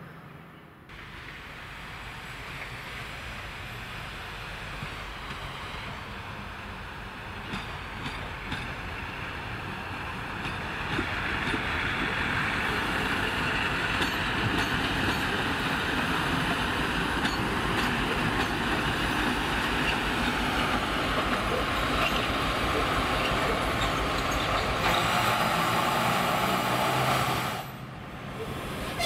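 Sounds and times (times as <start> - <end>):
diesel locomotive engine: 0.0 - 29.0
wheels clicking on track: 10.2 - 27.8.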